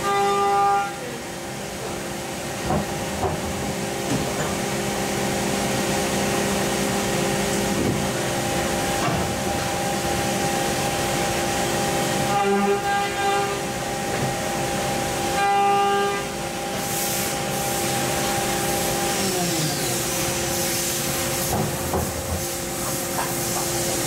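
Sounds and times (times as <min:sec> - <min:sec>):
coolant spray hissing: 0:16.8 - 0:24.0.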